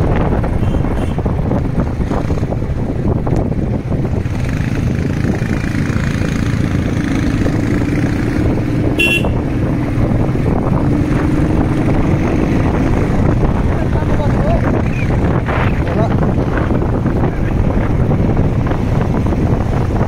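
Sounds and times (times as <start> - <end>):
road and wind noise: 0.0 - 20.0
motorcycle engine running: 0.1 - 20.0
vehicle horn beep: 9.0 - 9.4.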